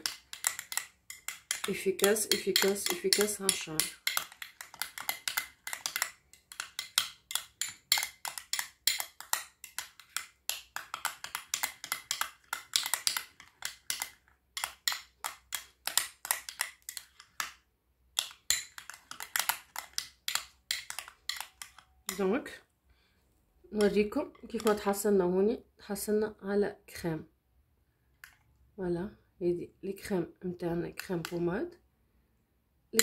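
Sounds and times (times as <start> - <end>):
metal spoon scraping ceramic bowl: 0.0 - 17.5, 18.2 - 22.5, 23.8 - 25.0.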